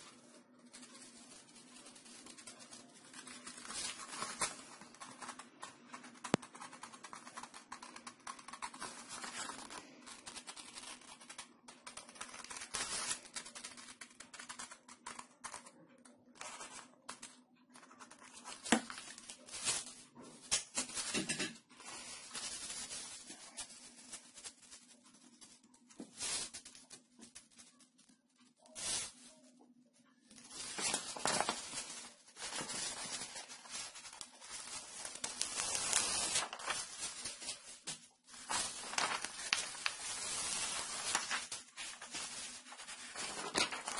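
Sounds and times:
paper rustling: 0:00.0 - 0:29.4, 0:30.2 - 0:43.9
scissors cutting paper: 0:01.8 - 0:19.0.

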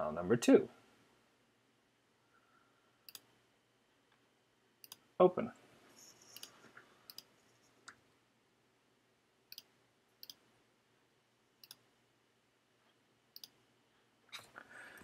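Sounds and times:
computer mouse clicks: 0:03.1 - 0:03.3, 0:04.8 - 0:05.0, 0:06.3 - 0:07.3, 0:09.5 - 0:10.4, 0:11.6 - 0:11.8, 0:13.4 - 0:13.6.

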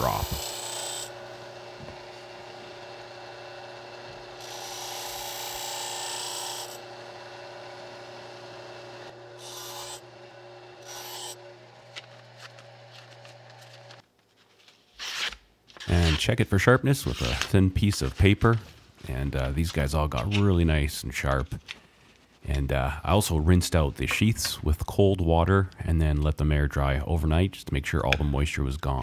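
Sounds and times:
bench grinder humming: 0:00.0 - 0:14.0
blade slicing paper: 0:11.8 - 0:14.0, 0:14.9 - 0:16.3, 0:17.0 - 0:18.6.

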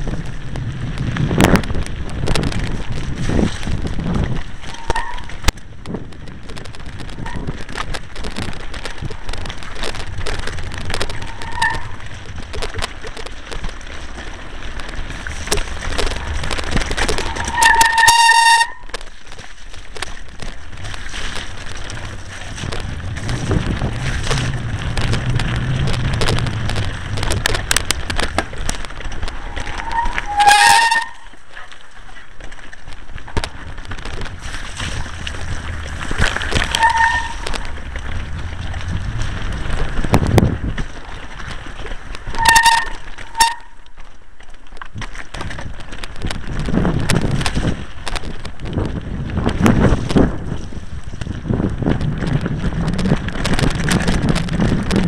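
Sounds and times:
wind on microphone: 0:00.0 - 0:19.0, 0:19.8 - 0:31.3, 0:33.2 - 0:43.8, 0:44.8 - 0:55.0
brakes squealing: 0:00.0 - 0:19.1, 0:20.0 - 0:32.3, 0:33.0 - 0:44.1
bike rattling over rocks: 0:00.0 - 0:55.0
tyre noise: 0:00.0 - 0:55.0.

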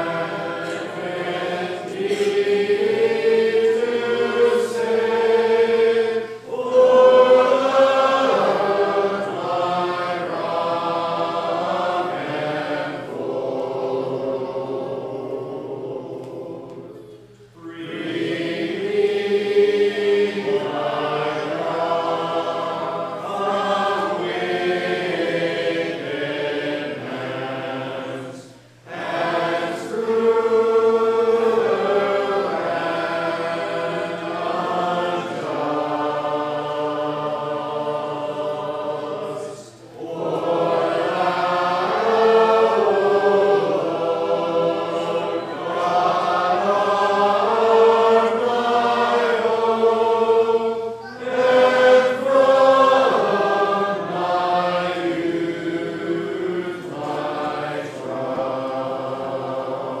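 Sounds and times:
congregation singing unaccompanied: 0:00.0 - 1:00.0.

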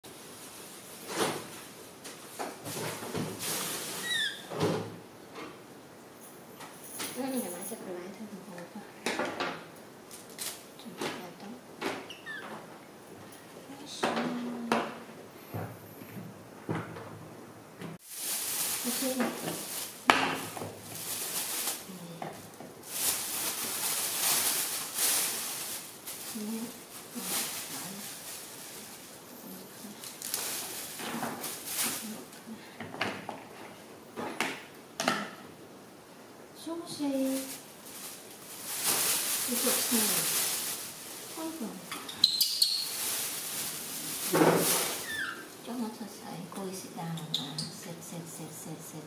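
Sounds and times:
plastic bag rustling: 0:00.0 - 0:05.1, 0:09.9 - 0:12.9, 0:18.0 - 0:34.4, 0:36.6 - 0:46.1
high falling chirp: 0:42.1 - 0:43.0.

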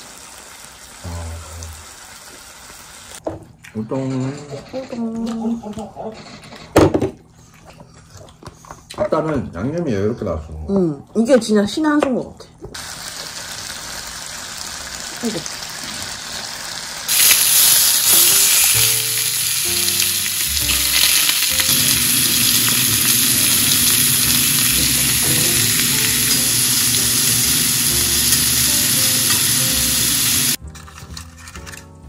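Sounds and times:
meat sizzling in a frying pan: 0:00.0 - 0:03.2, 0:12.8 - 0:30.6.

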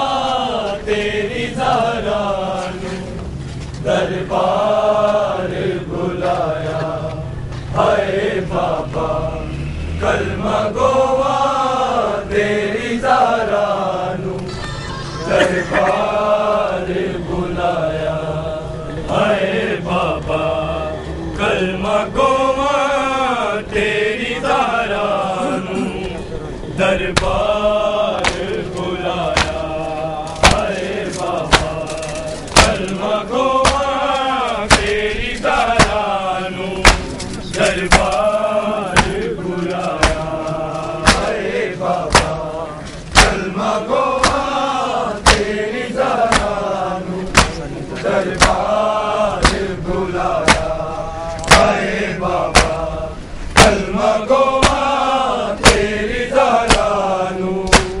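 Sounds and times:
men chanting a lament: 0:00.0 - 0:58.0
hands slapping chests: 0:28.2 - 0:28.5, 0:29.3 - 0:29.7, 0:30.4 - 0:30.8, 0:34.7 - 0:35.0, 0:36.8 - 0:37.2, 0:41.0 - 0:41.3, 0:42.1 - 0:42.4, 0:43.1 - 0:43.4, 0:44.2 - 0:44.5, 0:45.2 - 0:45.5, 0:46.2 - 0:46.6, 0:47.3 - 0:47.6, 0:48.4 - 0:48.7, 0:49.4 - 0:49.6, 0:50.4 - 0:50.8, 0:51.4 - 0:51.7, 0:52.5 - 0:52.8, 0:54.6 - 0:54.9, 0:56.6 - 0:57.0, 0:57.7 - 0:58.0.

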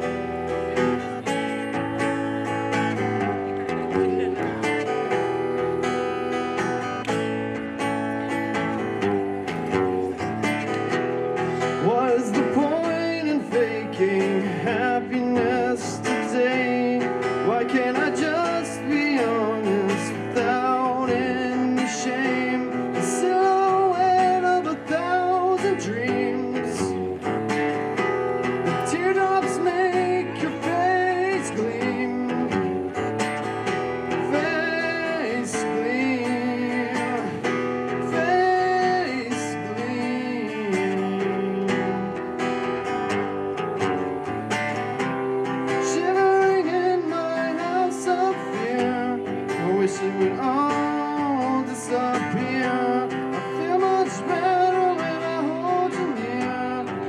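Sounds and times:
acoustic guitar through pa: 0:00.0 - 0:57.0
person singing: 0:10.1 - 0:27.3, 0:28.6 - 0:33.1, 0:34.1 - 0:42.4, 0:45.7 - 0:57.0.

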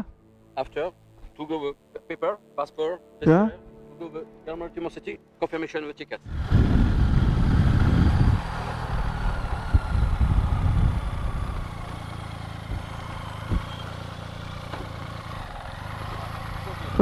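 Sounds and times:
vehicle engine idling: 0:06.3 - 0:17.0.

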